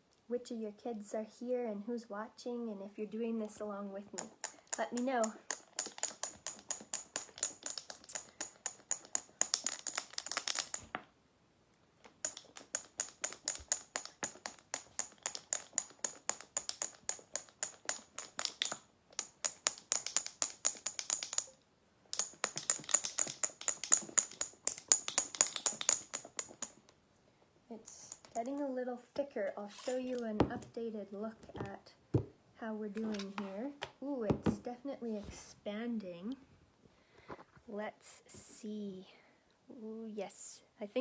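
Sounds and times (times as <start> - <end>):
marbles rattling in a shaken jar: 4.2 - 10.9, 12.2 - 26.8.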